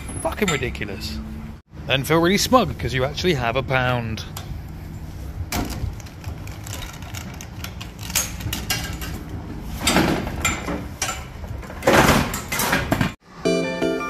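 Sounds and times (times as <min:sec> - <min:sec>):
shopping trolley rattling on bricks: 0:05.6 - 0:12.9.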